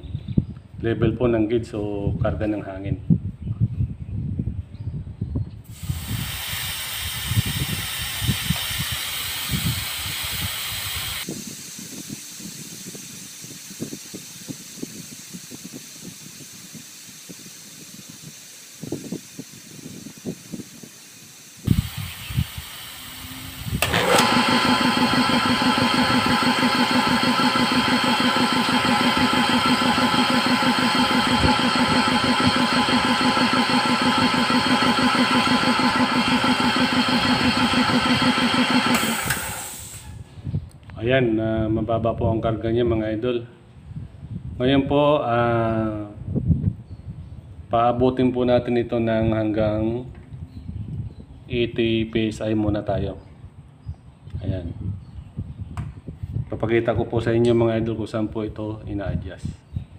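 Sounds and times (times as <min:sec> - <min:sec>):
compressor motor running: 0:05.7 - 0:40.3
compressed air hissing: 0:05.7 - 0:40.5.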